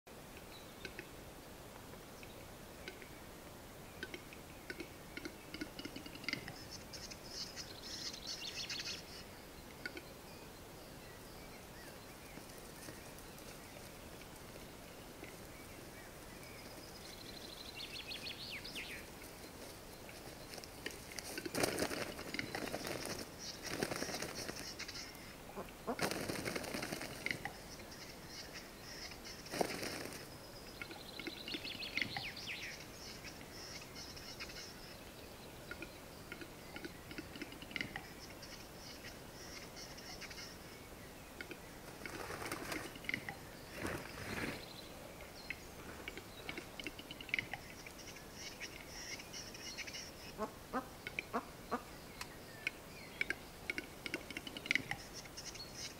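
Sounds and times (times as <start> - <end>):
bird display song clicking: 0.3 - 1.2, 2.1 - 3.2, 3.9 - 10.2, 11.1 - 55.9
wing flapping: 20.5 - 25.0, 25.9 - 27.5, 29.4 - 30.3, 41.8 - 44.8.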